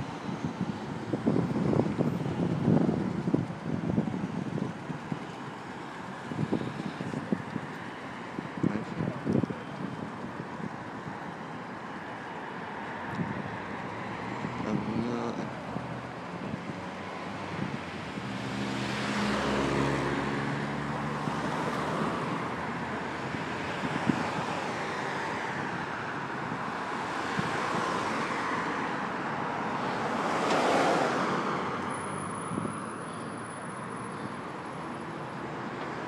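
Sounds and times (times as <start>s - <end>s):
wind on microphone: 0.0s - 5.3s, 6.2s - 11.2s, 13.0s - 20.7s, 21.3s - 24.9s, 32.2s - 33.0s
cars passing: 0.0s - 36.0s.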